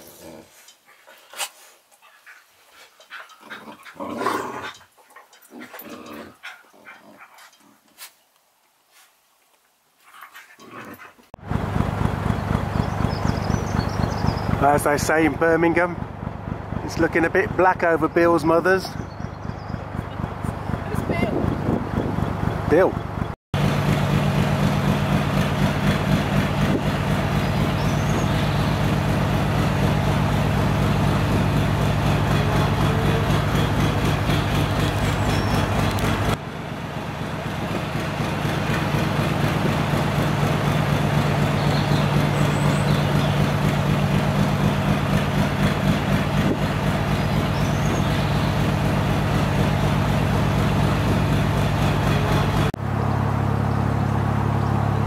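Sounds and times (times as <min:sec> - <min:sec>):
boat diesel engine running: 0:11.4 - 0:55.0.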